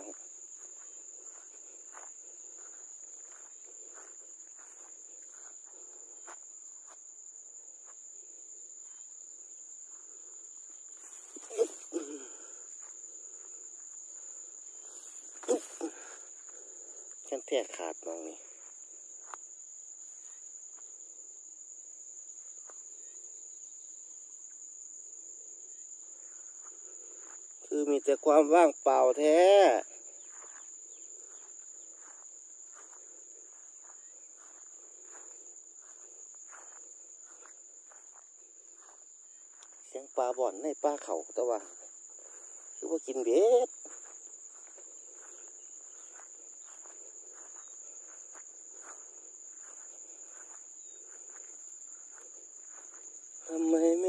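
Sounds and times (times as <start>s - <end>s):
footsteps brushing through grass: 0.0s - 7.0s, 29.9s - 39.9s, 41.6s - 54.0s
insects droning: 0.0s - 54.0s.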